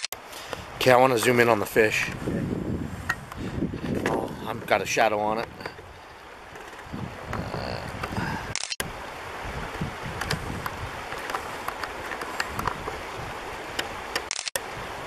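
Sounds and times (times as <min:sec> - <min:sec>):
water at the shore: 0:00.0 - 0:15.0
wind on microphone: 0:00.5 - 0:15.0
small clicks: 0:13.8 - 0:14.6.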